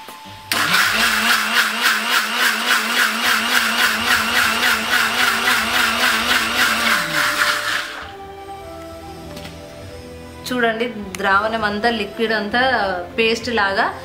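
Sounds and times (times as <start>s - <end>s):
mixer grinder motor running: 0.5s - 8.2s.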